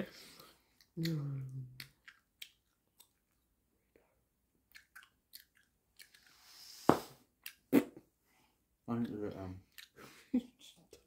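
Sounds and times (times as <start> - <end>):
gum chewing wet clicks: 0.8 - 3.5, 4.7 - 6.3, 7.4 - 7.8.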